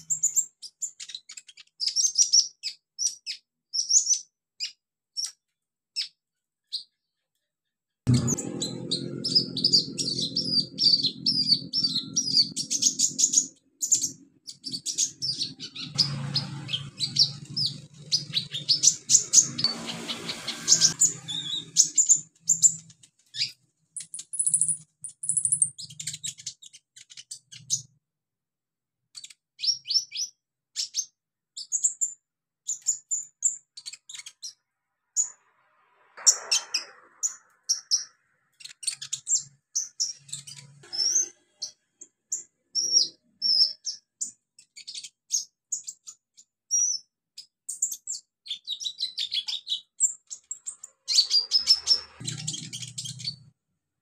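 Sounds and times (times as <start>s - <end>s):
sunbird high chirps: 8.1s - 27.9s, 46.7s - 53.5s.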